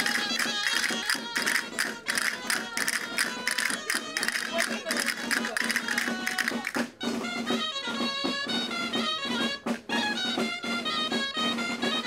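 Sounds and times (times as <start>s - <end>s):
castanets clicking: 0.0s - 6.8s
reedy wind melody: 0.0s - 9.6s.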